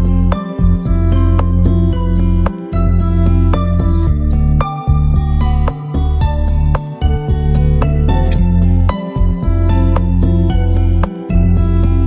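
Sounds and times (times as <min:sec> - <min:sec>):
new-age instrumental music: 0:00.0 - 0:12.0.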